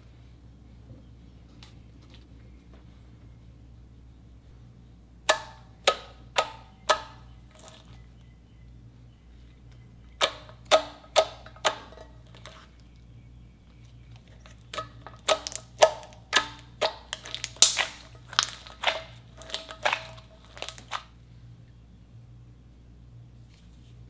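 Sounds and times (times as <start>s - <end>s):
slime popping: 14.6s - 21.1s.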